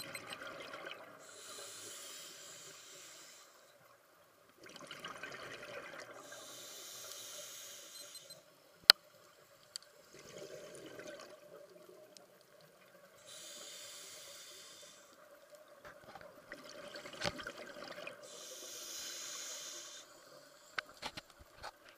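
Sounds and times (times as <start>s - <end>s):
regulator inhalations: 1.2s - 3.8s, 6.2s - 8.4s, 13.2s - 15.2s, 18.2s - 20.9s
exhaled bubbles rushing: 4.6s - 6.2s, 10.1s - 12.0s.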